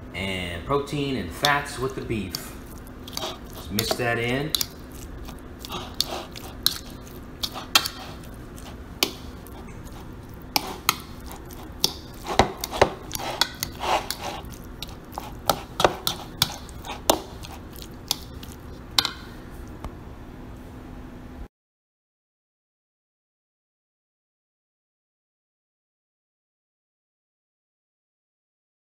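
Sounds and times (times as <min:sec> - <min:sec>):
faint steady hum: 0:00.0 - 0:21.5
fork scraping a bowl: 0:01.4 - 0:19.4.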